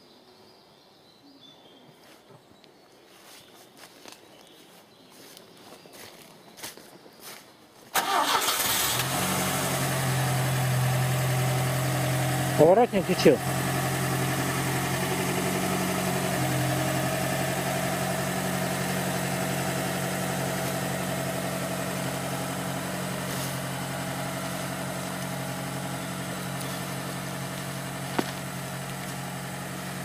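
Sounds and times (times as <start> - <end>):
van engine running: 8.0 - 30.0.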